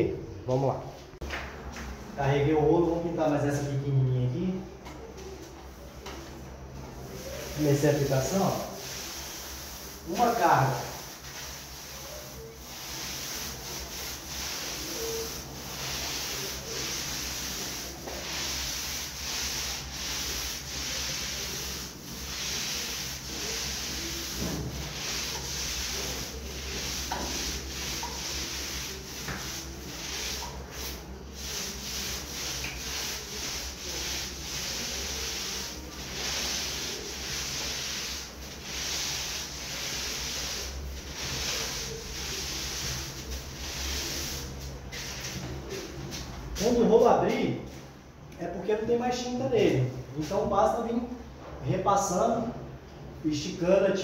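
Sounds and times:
paint roller wet swishing: 5.1s - 47.8s.

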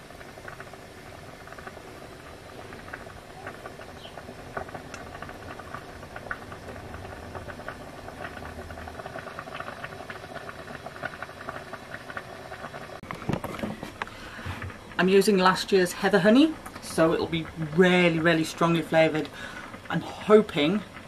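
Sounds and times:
pan boiling on camping stove: 0.0s - 21.0s.

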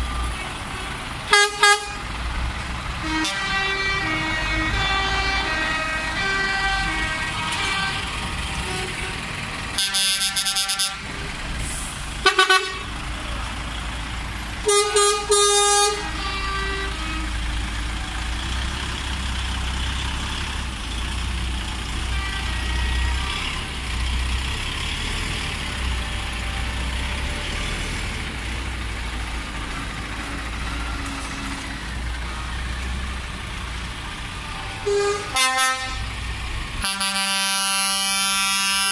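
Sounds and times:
diesel truck engines rumbling: 0.0s - 38.9s
air horn blasts: 1.3s - 2.0s, 3.0s - 9.2s, 9.8s - 11.0s, 12.2s - 12.9s, 14.6s - 17.3s, 22.1s - 23.5s, 34.6s - 36.1s, 36.8s - 38.9s.

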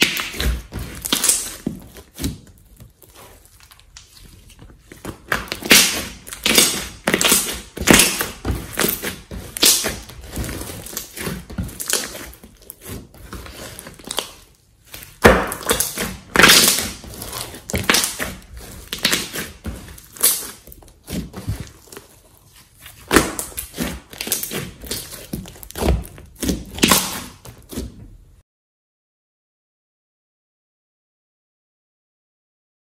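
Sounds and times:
slime squelching by hand: 0.0s - 28.0s.

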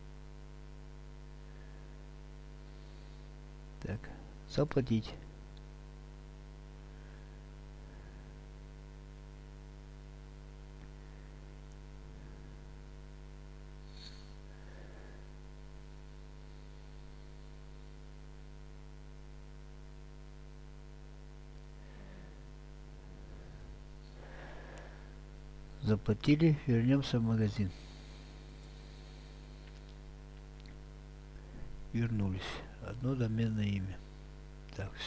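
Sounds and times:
electrical mains hum: 0.0s - 35.0s.

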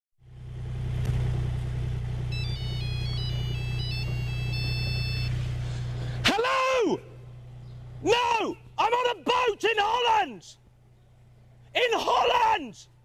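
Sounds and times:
motorboat engine hum: 0.2s - 6.3s, 7.0s - 8.8s
phone ringtone beeping melody: 2.3s - 5.5s.

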